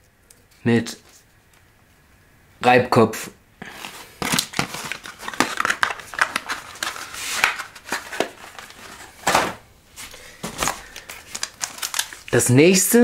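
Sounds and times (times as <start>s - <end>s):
packaging rustling and crinkling: 3.6s - 12.4s.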